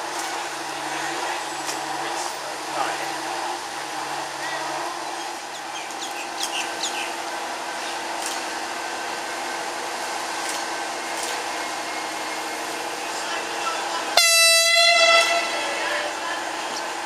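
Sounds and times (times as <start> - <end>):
diesel railcars droning: 0.0 - 17.0
bird chirps: 5.2 - 7.2.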